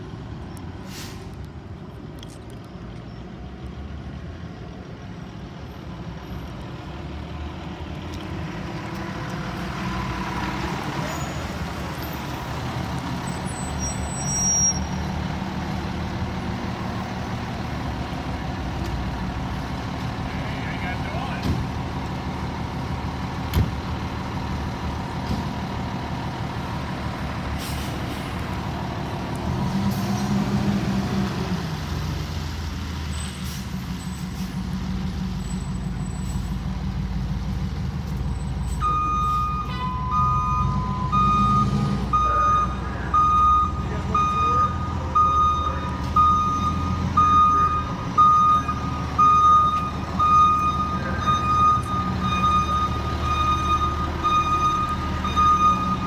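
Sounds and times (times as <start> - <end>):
fire engine diesel engine: 0.0 - 56.0
reversing alarm beeping: 38.8 - 56.0.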